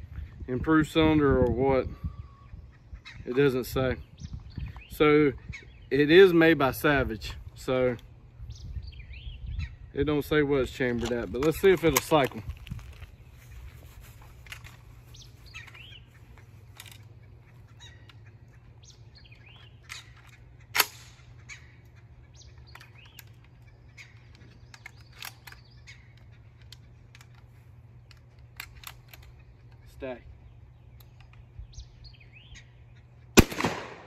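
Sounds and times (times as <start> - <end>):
birds chirping: 0.0 - 34.0
shotgun action clacking: 33.4 - 34.0.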